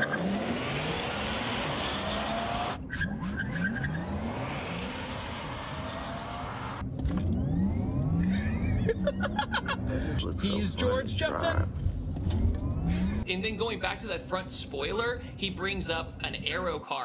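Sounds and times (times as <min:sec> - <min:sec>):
electric car whirring while accelerating: 0:00.0 - 0:11.0, 0:11.9 - 0:13.3
tire and road noise: 0:00.0 - 0:13.2.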